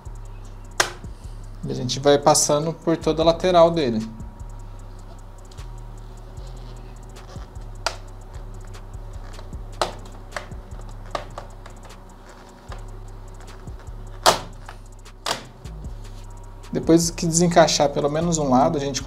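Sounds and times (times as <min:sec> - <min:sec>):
plastic clips popping loose: 0:00.8 - 0:01.0, 0:09.8 - 0:11.8, 0:14.2 - 0:15.5.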